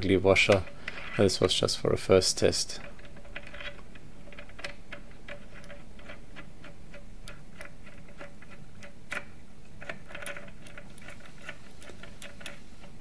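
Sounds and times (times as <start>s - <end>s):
ball screw metallic clicks: 2.8s - 13.0s.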